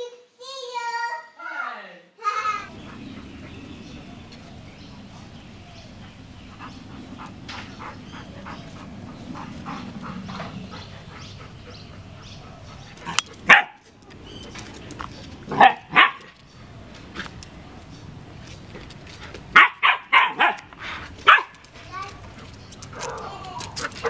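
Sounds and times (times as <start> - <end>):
puppies play-fighting: 2.6 - 24.0
puppy barking loudly: 13.0 - 13.9, 15.5 - 16.4, 19.5 - 21.6.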